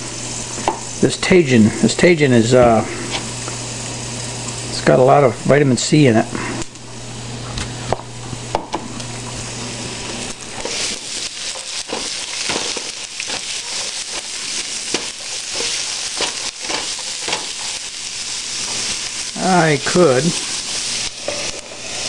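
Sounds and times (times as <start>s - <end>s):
vegetables sizzling in oil: 0.0s - 22.0s
spatula scraping a pan: 10.6s - 17.9s, 21.2s - 22.0s.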